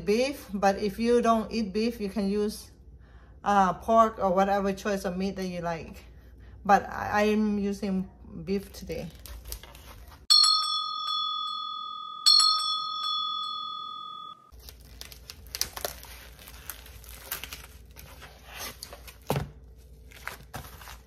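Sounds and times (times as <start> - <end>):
plastic packaging crinkling: 8.6 - 10.3, 14.5 - 21.0
bell-like chimes: 10.3 - 14.5.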